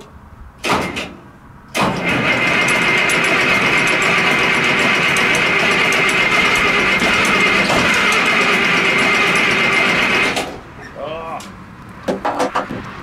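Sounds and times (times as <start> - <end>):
diesel tractor engine starting and running: 0.6 - 11.0.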